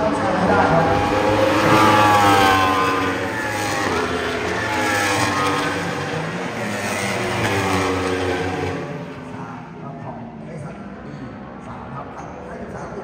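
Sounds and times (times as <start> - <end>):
racing motorcycles passing: 0.0 - 9.8.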